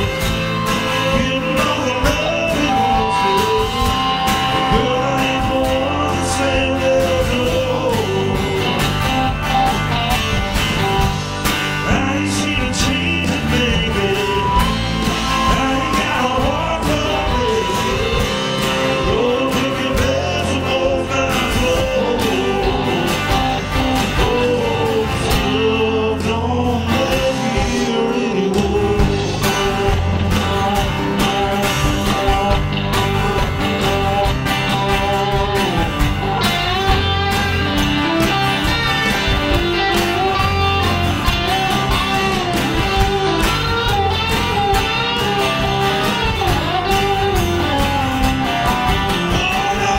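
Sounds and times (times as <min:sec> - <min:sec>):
man singing: 0:00.0 - 0:09.3, 0:11.8 - 0:37.3, 0:39.7 - 0:49.9
bass guitar: 0:00.0 - 0:49.9
electric guitar: 0:00.0 - 0:49.9
strummed acoustic guitar: 0:00.0 - 0:49.9.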